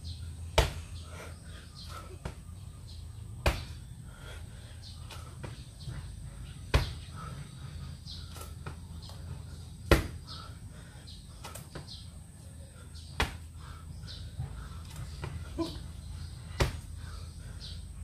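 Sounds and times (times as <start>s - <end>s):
low steady hum: 0.0s - 18.0s
bird chirps: 4.6s - 18.0s.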